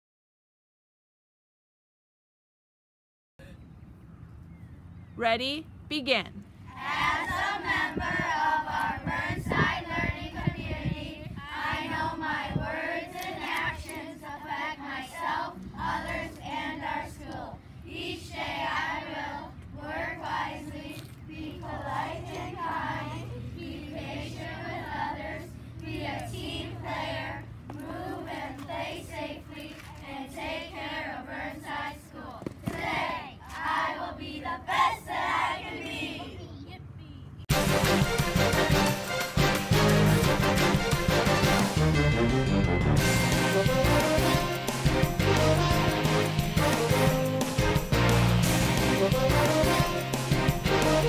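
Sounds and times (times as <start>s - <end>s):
children singing in unison: 6.7s - 17.3s.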